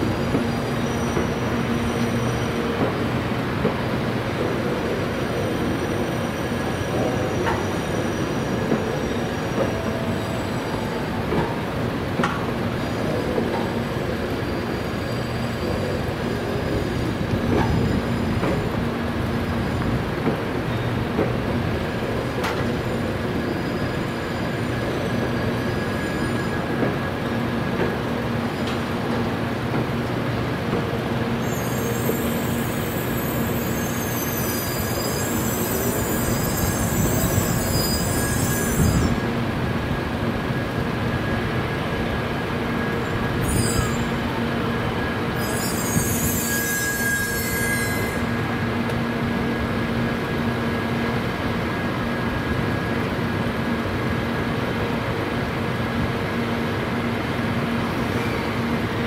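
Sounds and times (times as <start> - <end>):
train rumble and hum: 0.0 - 59.0
wheel squeal on rails: 0.2 - 3.1, 4.6 - 11.6, 12.2 - 20.0, 22.0 - 27.1, 31.4 - 39.4, 43.0 - 44.4, 45.0 - 48.7.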